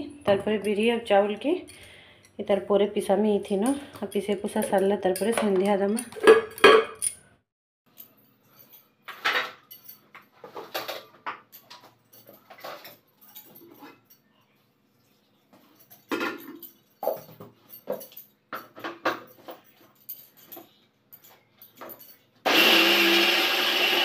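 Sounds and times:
kitchen utensils clinking and clattering: 0:03.5 - 0:07.3, 0:07.9 - 0:14.4, 0:15.6 - 0:22.4.

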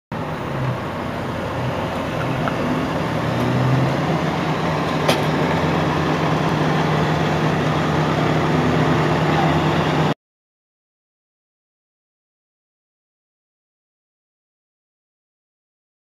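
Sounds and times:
road traffic noise: 0:00.1 - 0:10.2
vehicle engine hum: 0:00.1 - 0:10.2.

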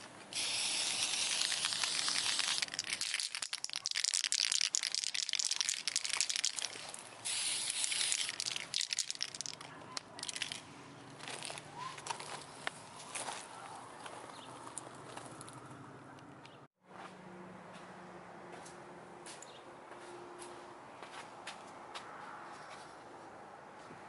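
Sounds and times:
aerosol spray can hissing: 0:00.3 - 0:03.1, 0:07.2 - 0:09.5
footsteps on gravel: 0:09.6 - 0:15.3.

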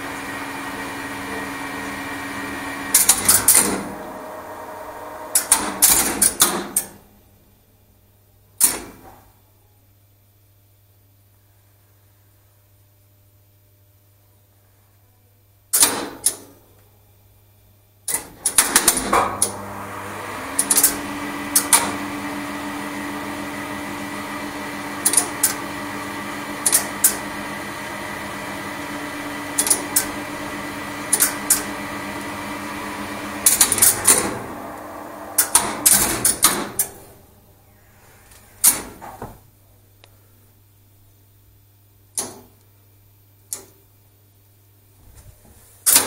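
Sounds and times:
lift machine humming: 0:00.0 - 0:07.2, 0:18.4 - 0:40.1
relay clicks: 0:05.3 - 0:07.0, 0:33.4 - 0:37.2
relays and contactors clattering: 0:35.4 - 0:37.2.

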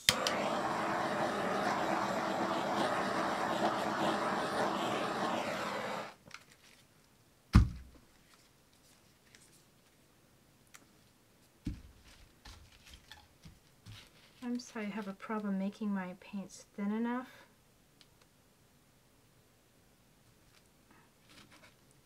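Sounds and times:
steady rushing noise: 0:00.0 - 0:06.2.

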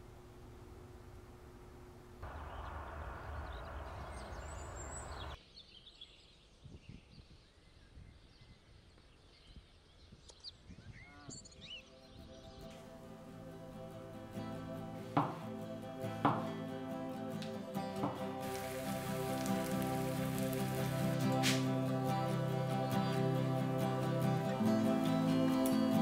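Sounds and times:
steady rushing noise: 0:02.2 - 0:05.4, 0:18.4 - 0:25.4
small birds chirping: 0:02.2 - 0:26.0.

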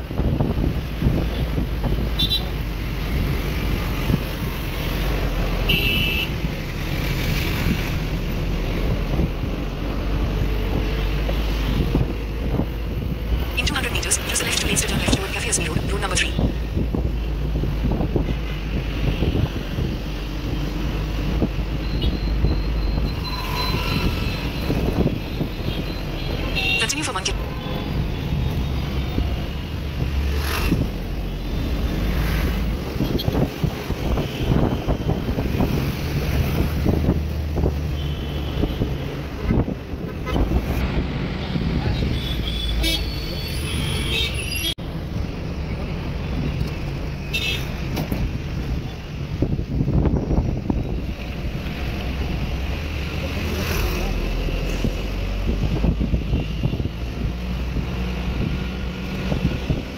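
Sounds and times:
city traffic road noise: 0:00.0 - 0:59.9
car horn beep: 0:05.7 - 0:06.3.

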